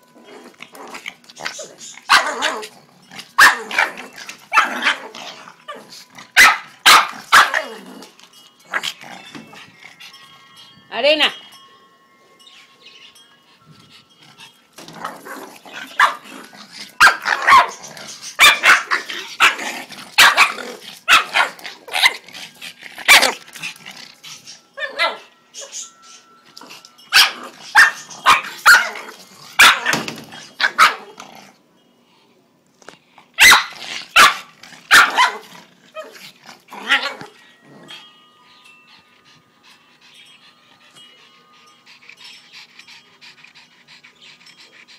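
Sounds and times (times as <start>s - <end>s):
dog barking and growling: 0.6s - 9.3s, 15.0s - 25.7s, 27.1s - 31.6s, 33.4s - 38.0s.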